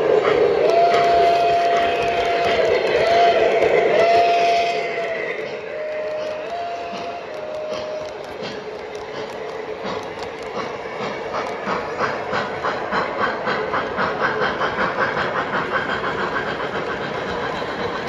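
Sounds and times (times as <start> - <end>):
model steam locomotive chuffing: 0.0 - 18.0.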